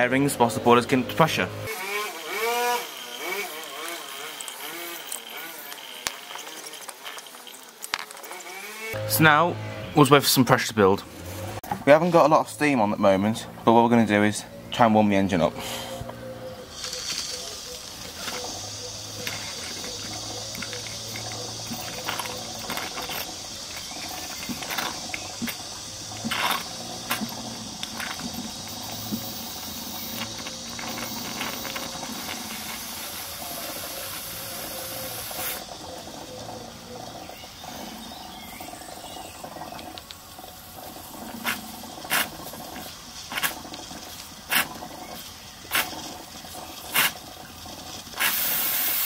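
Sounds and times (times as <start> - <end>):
steam exhaust puffs: 15.5 - 36.8, 39.4 - 49.0
steady steam hiss: 15.5 - 49.0
model steam engine spluttering: 16.7 - 49.0.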